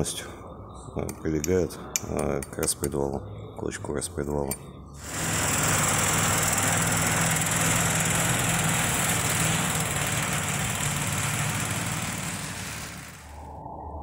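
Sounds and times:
small engine droning: 0:05.0 - 0:13.6.

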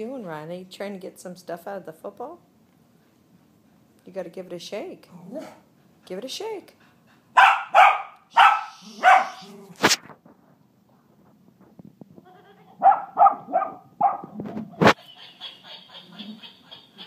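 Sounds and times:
toy monkey laughing: 0:14.8 - 0:17.0.

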